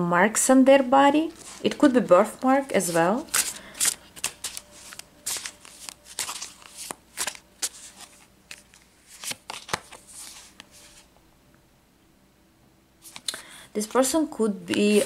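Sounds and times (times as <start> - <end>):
cards rustling: 2.7 - 11.1, 13.0 - 15.0
cards snapping: 3.3 - 10.7.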